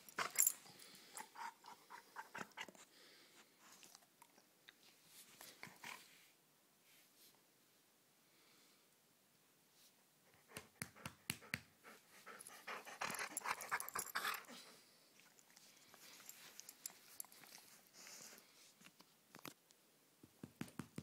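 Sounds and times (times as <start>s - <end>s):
dog panting and huffing: 0.0s - 2.9s, 10.3s - 14.8s.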